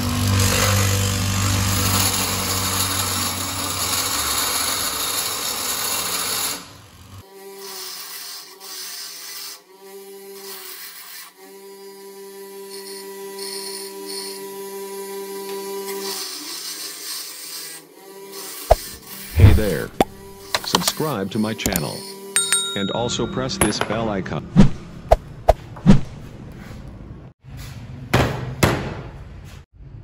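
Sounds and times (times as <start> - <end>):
bench grinder grinding metal: 0.0 - 22.4.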